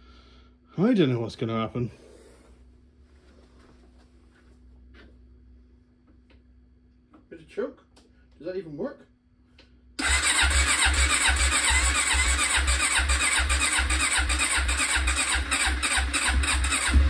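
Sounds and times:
engine cranking on starter: 10.0s - 17.0s.

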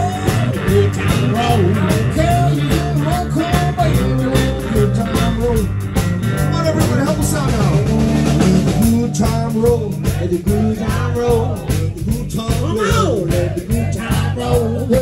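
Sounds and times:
bass line: 0.0s - 15.0s
electric guitars bending notes: 0.0s - 15.0s
regular drum beat: 0.0s - 15.0s.

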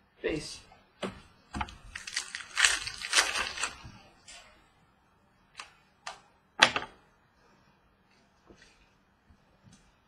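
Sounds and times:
trading cards rustling: 1.9s - 3.9s.

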